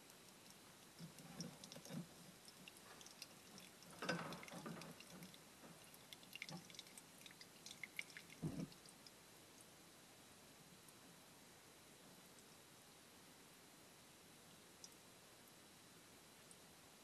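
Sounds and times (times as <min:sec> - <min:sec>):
fluid dripping into metal pan: 0:00.0 - 0:09.2.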